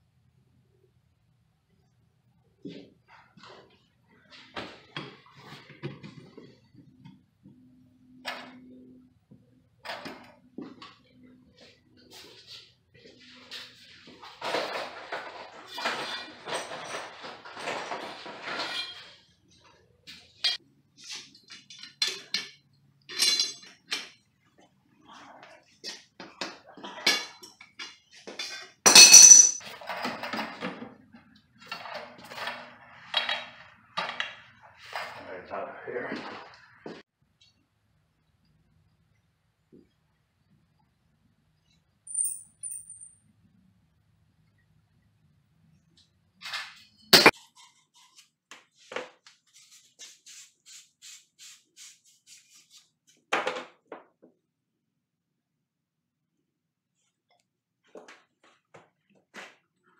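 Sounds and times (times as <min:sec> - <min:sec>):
copper pipe clinking: 0:28.9 - 0:29.6
sanding pipe rasping strokes: 0:49.5 - 0:52.9.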